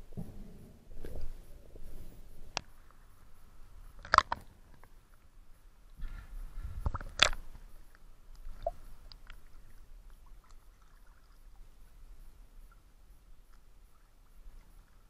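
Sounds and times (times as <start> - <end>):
water lapping and dripping: 1.0 - 15.0
water splashing: 3.8 - 4.9, 6.8 - 7.6, 8.4 - 12.0.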